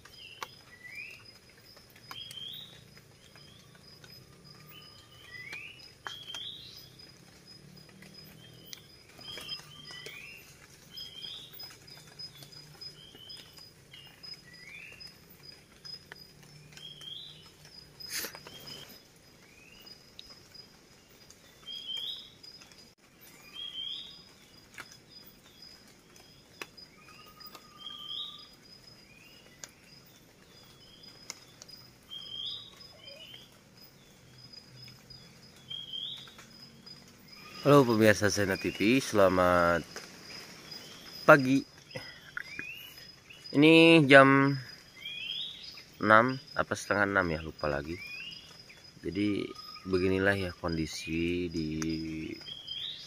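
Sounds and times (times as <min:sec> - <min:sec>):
insect drone: 0:00.0 - 0:53.0
birds chirping and whistling: 0:02.0 - 0:07.0, 0:08.0 - 0:15.2, 0:16.4 - 0:19.9, 0:23.3 - 0:24.4, 0:26.3 - 0:43.9, 0:44.6 - 0:46.2, 0:47.3 - 0:53.0.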